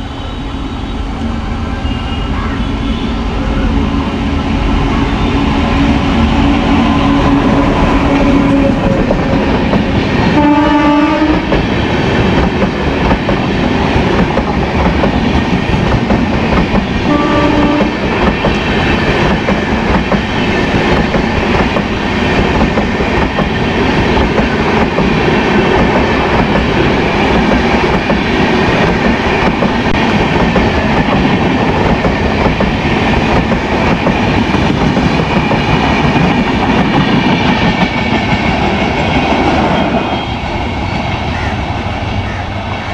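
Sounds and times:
train horn blasts: 0.0 - 8.8, 10.3 - 11.5, 17.0 - 18.1
train wheels clickety-clack: 5.6 - 41.4.

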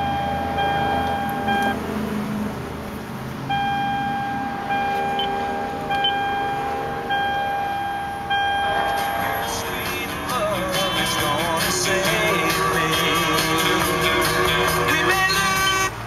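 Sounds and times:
car warning chime beeps: 0.0 - 1.8, 3.5 - 13.2
low steady hum: 3.5 - 15.0.

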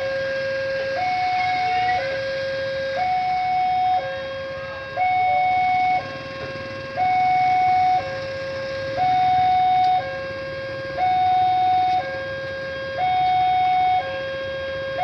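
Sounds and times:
level crossing two-tone alarm: 0.0 - 15.0.

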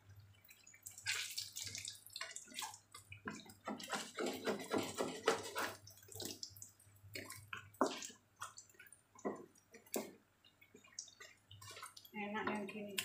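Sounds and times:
food frying in hot oil: 0.0 - 13.0
wooden spatula scraping pan: 3.3 - 6.2.

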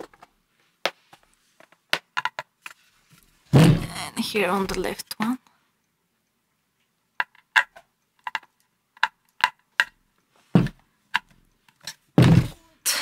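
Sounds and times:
speaker cabinet thumps: 3.6 - 3.9, 12.2 - 12.6.

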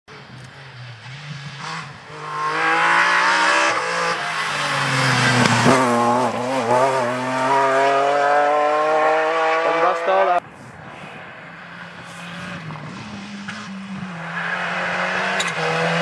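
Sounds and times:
rally car engine revving past: 0.7 - 10.4.

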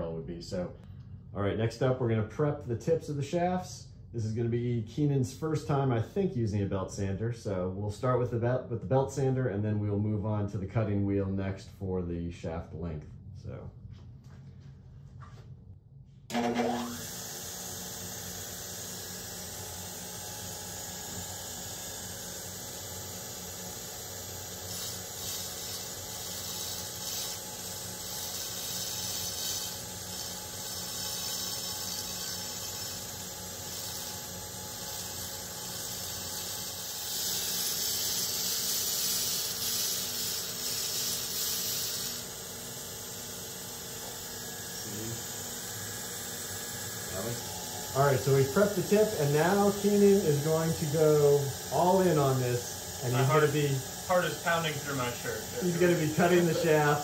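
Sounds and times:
belt sander running: 16.3 - 57.0
metal rasping against sanding belt: 24.5 - 42.3.

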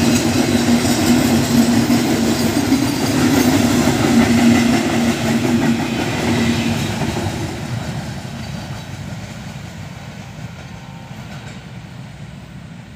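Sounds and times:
train wheels rumbling on rails: 0.0 - 12.9.

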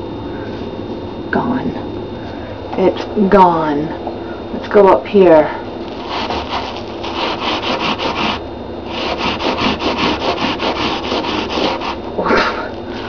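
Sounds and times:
sponge scrubbing bathtub: 5.9 - 13.0.

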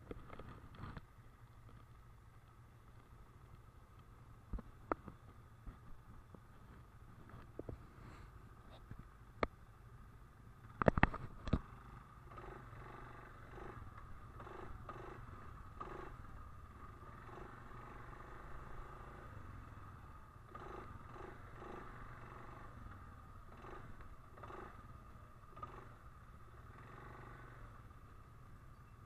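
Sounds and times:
atv engine puttering: 10.6 - 28.1.

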